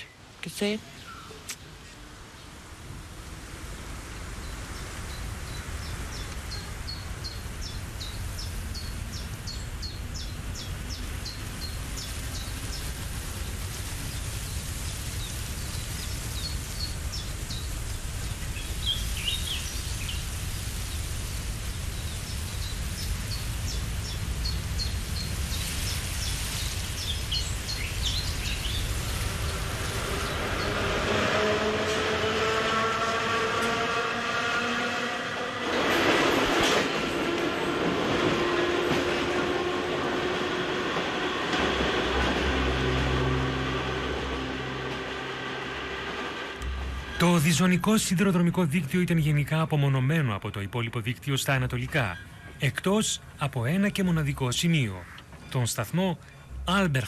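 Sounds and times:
electric train whine: 2.6s - 48.8s
bird chirping: 4.4s - 30.9s
steady low rumble: 41.7s - 49.4s.

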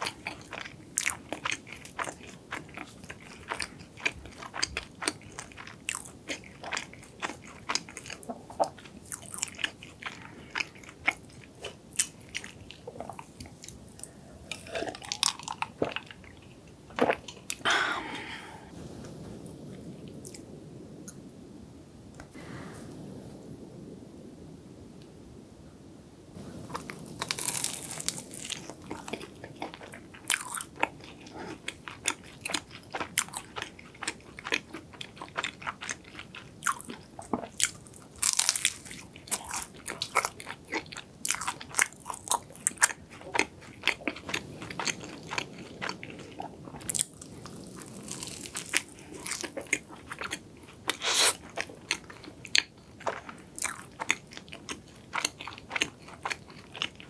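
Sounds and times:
pastry crackling while chewing: 0.0s - 17.6s, 26.4s - 57.0s
crunching bites: 26.7s - 57.0s.

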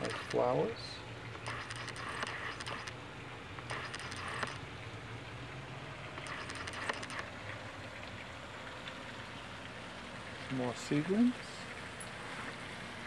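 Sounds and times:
steady low hum: 0.0s - 9.4s
leaves rustling against camera: 1.4s - 3.0s, 3.6s - 4.6s, 6.2s - 7.4s.

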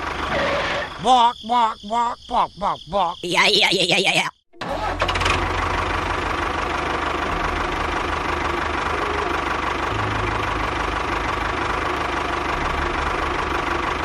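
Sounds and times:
tractor engine chugging: 4.6s - 14.0s.

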